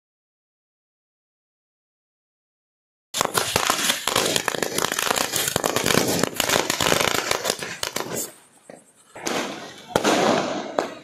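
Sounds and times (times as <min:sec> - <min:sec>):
firecrackers crackling: 0:03.2 - 0:11.0.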